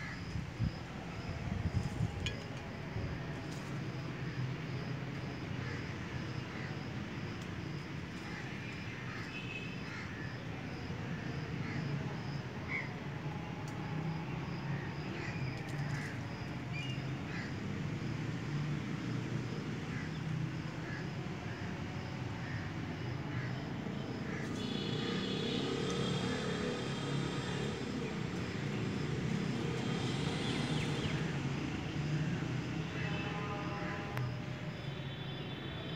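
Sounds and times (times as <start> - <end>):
distant engines humming: 13.0 - 34.5.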